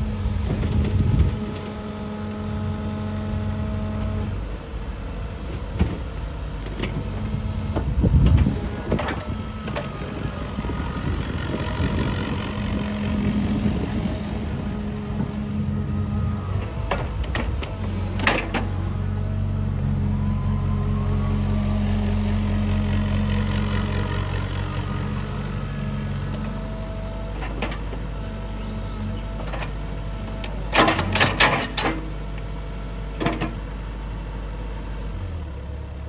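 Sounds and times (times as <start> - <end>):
excavator diesel engine running: 0.0 - 36.0.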